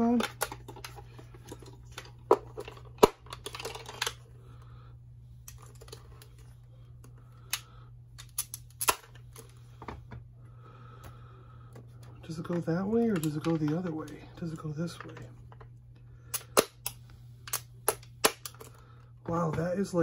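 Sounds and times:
plastic parts clicking and tapping: 0.0 - 4.2, 12.0 - 14.2
steady low hum: 0.0 - 20.0.

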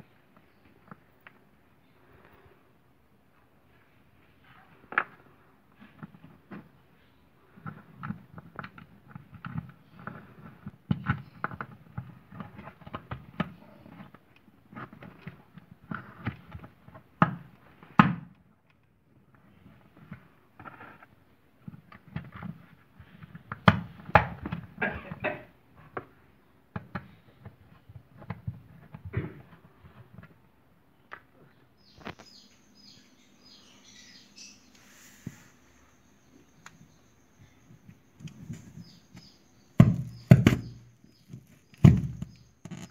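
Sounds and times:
cardboard rustling: 38.0 - 42.9
sharp knocks: 39.2 - 41.0
plastic clicks and scrapes: 40.0 - 42.9.

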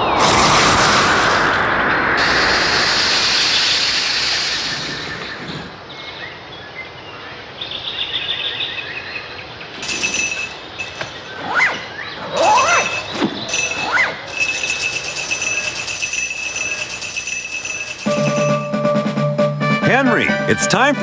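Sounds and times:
high squeaky tones: 9.8 - 18.8
rising squeal: 10.8 - 14.8
cartoon rushing noise: 11.4 - 14.3.

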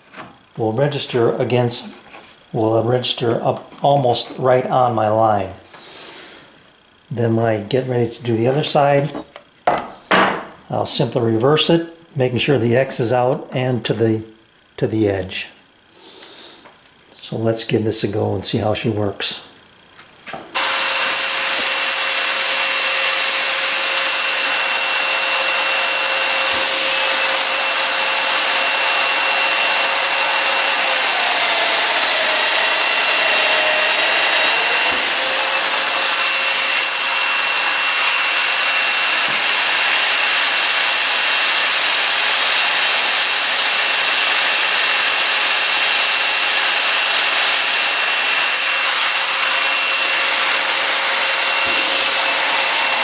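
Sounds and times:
dust extractor rushing: 20.6 - 53.0
power joiner running: 20.6 - 53.0.

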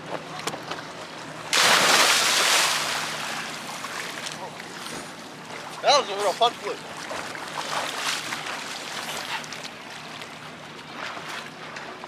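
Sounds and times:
water splashing from swimming: 1.5 - 4.4.

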